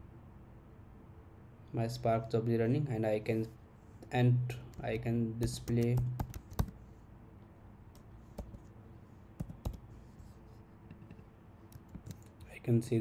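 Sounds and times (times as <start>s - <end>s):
computer keyboard typing: 5.4s - 6.8s, 8.0s - 8.7s, 9.4s - 9.8s.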